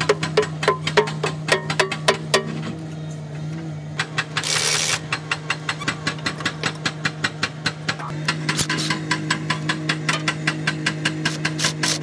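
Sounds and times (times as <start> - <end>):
hammer striking steel wheel hub: 0.0 - 2.8, 4.0 - 12.0.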